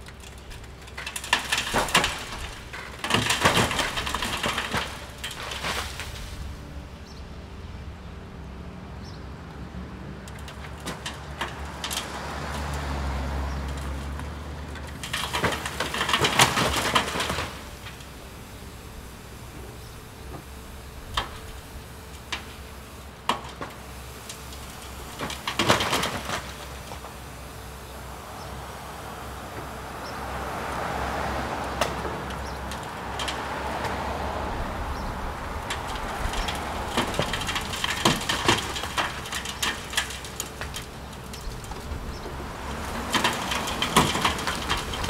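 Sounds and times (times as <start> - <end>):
brick and wood cracking: 0.0 - 6.4, 13.7 - 18.0, 24.5 - 27.1, 35.6 - 45.0.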